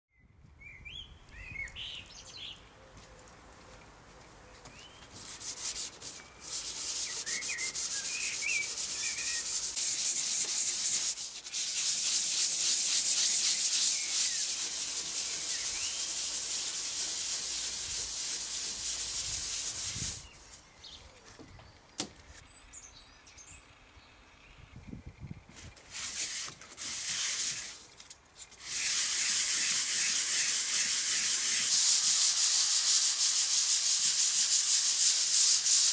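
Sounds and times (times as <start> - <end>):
sandpaper rubbing on wood: 5.1 - 20.6, 25.9 - 27.9, 28.5 - 35.9
birds chirping: 6.1 - 9.6.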